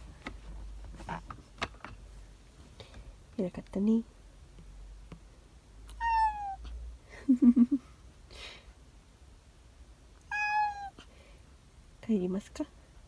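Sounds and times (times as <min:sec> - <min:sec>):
cat meowing: 0:05.9 - 0:06.7, 0:10.3 - 0:11.0.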